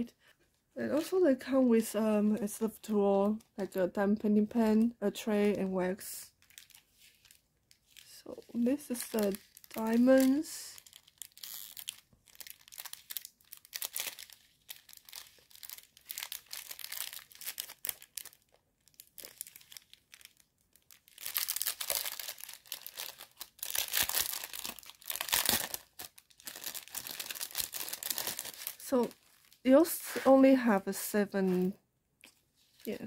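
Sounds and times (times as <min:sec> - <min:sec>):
plastic packets crinkling: 0:06.0 - 0:30.8.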